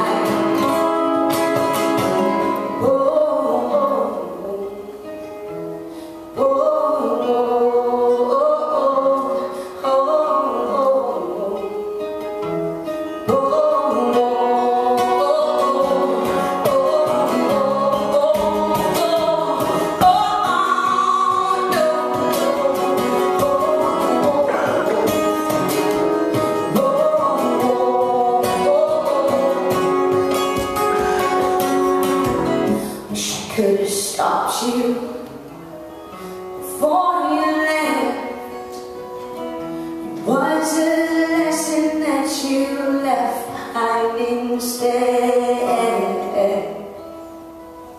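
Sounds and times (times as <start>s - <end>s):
woman singing: 0.0s - 47.2s
strummed acoustic guitar: 0.0s - 47.9s.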